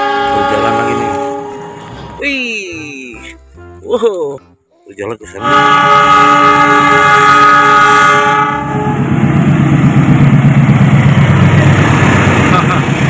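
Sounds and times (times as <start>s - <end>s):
locomotive air horn blast: 0.0s - 2.2s, 3.1s - 3.9s, 5.3s - 9.1s
locomotive engine rumble: 0.0s - 4.6s, 5.2s - 13.0s.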